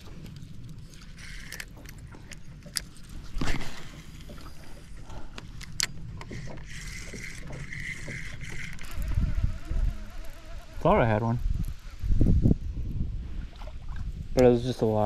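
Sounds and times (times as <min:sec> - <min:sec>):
fishing reel clicks and handling: 0:00.9 - 0:02.9.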